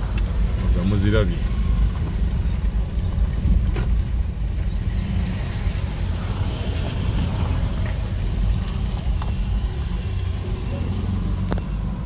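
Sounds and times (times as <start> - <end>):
car driving on dirt road: 0.0 - 12.0.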